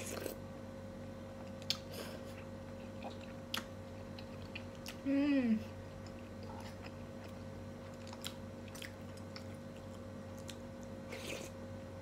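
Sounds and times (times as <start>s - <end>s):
person chewing: 1.5s - 5.0s, 5.9s - 11.6s.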